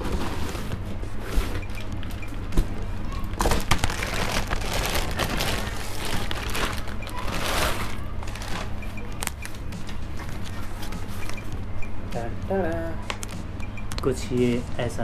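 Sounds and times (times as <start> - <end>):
packaging crinkling: 3.4 - 9.4.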